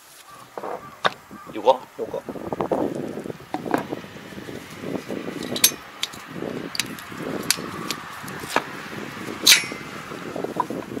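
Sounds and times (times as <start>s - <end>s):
metallic clicks and knocks: 5.4s - 6.2s, 9.5s - 9.8s.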